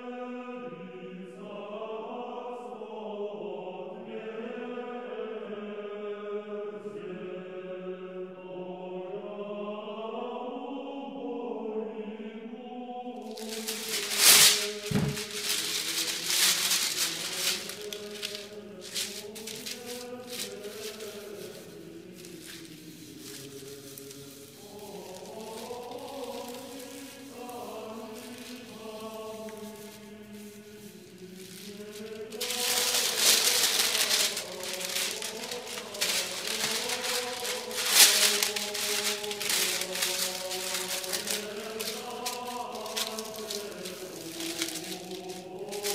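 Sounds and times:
slow chant music: 0.0s - 45.9s
paper crinkling and rustling: 13.2s - 45.9s.

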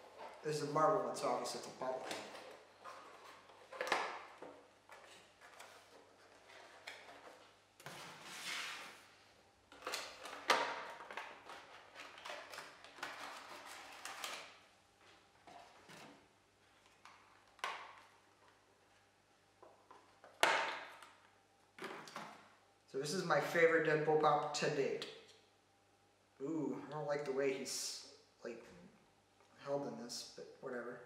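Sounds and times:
cardboard and plastic packaging rustling: 0.0s - 9.1s, 9.7s - 18.6s.

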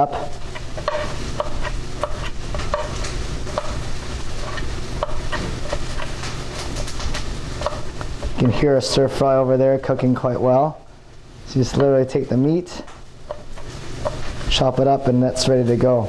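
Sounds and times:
vegetables sizzling in a pan: 0.0s - 8.4s, 13.0s - 14.6s.

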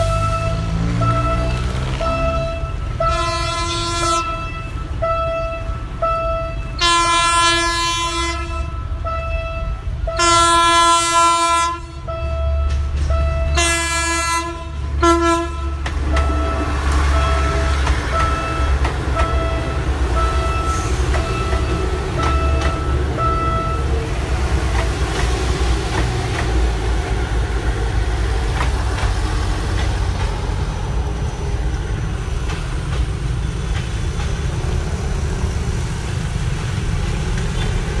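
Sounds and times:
crossing warning signal beeps: 0.0s - 3.2s, 4.2s - 6.8s, 8.6s - 10.4s, 12.0s - 13.9s, 16.0s - 24.1s
train rumbling: 0.0s - 38.0s.

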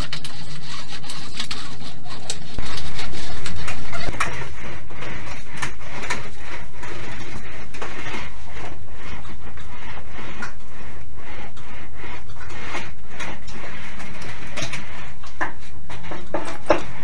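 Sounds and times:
roller scraping along sheet metal: 0.0s - 17.0s.

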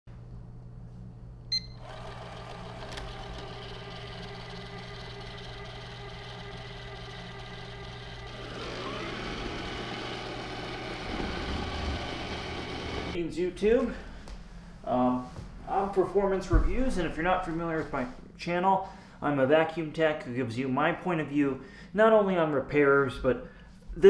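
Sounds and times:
robot vacuum motor whine: 1.8s - 13.2s.

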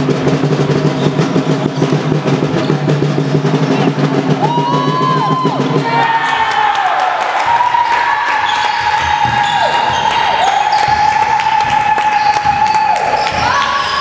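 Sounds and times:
basketball bouncing on wooden floor: 8.4s - 14.0s.

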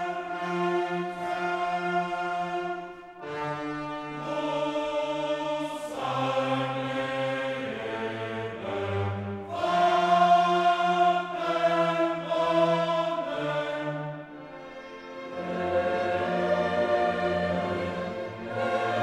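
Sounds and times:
choir singing held notes: 0.0s - 19.0s
orchestral accompaniment: 0.0s - 19.0s.

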